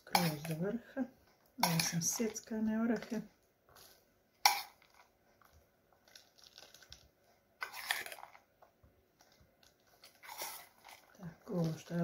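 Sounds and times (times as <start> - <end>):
spoon scraping: 0.0 - 0.6, 1.6 - 7.0, 7.6 - 8.4, 9.2 - 12.0
nuts crunching: 4.5 - 8.5
baking paper rustling: 4.8 - 8.5, 9.2 - 12.0.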